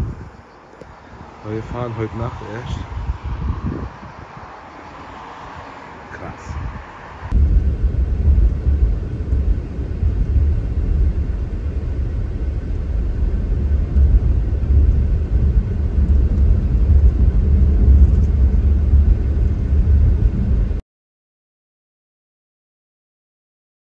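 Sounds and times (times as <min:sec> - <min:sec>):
car cabin road rumble: 0:05.6 - 0:20.8.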